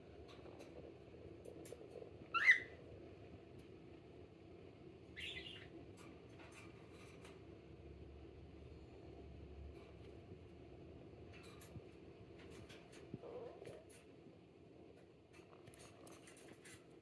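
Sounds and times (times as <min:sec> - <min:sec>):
cockatiel calls: 0:02.3 - 0:02.8, 0:05.2 - 0:05.7.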